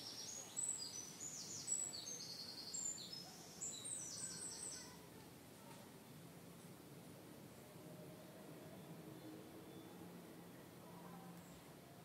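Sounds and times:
songbird chirping: 0:00.0 - 0:05.1.

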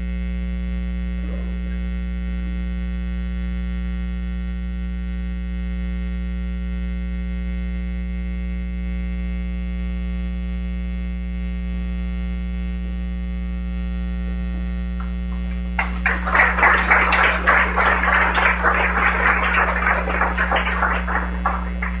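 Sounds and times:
electrical mains hum: 0:14.5 - 0:22.0
people applauding: 0:15.0 - 0:22.0.

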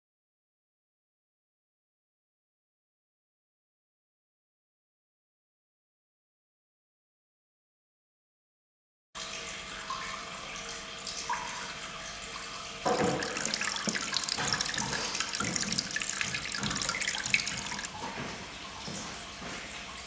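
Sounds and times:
fountain water trickling: 0:09.2 - 0:19.0.

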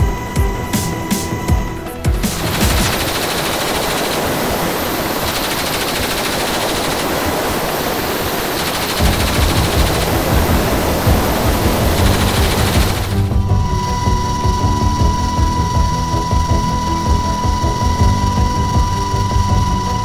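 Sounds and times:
low pulsing beat: 0:00.0 - 0:03.6, 0:09.0 - 0:20.0
machine gun automatic fire: 0:02.0 - 0:13.3.

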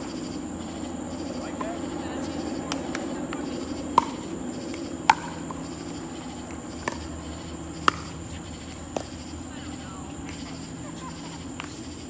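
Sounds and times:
night insects droning: 0:00.0 - 0:12.0
paddles striking plastic ball: 0:02.7 - 0:09.3.

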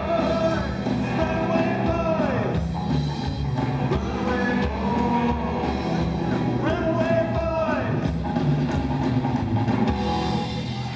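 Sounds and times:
rockabilly band playing: 0:00.0 - 0:10.9
person singing: 0:03.8 - 0:07.8.

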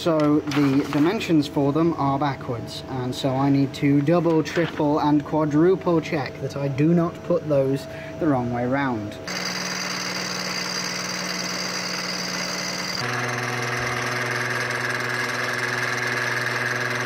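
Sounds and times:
milling machine cutting metal: 0:09.3 - 0:17.0.

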